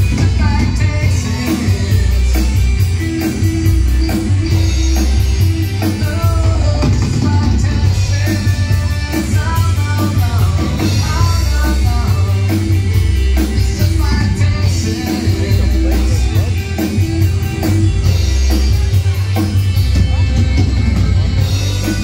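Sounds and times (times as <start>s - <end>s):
person singing: 0.0s - 3.4s, 5.8s - 17.7s
live rock band playing: 0.0s - 22.0s.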